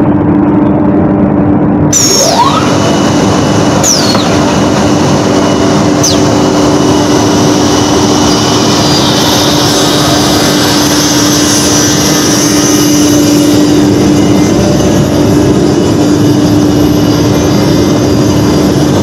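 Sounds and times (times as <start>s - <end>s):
machine drone: 0.0s - 19.0s
high squeal sliding down: 1.9s - 4.7s, 5.4s - 13.7s.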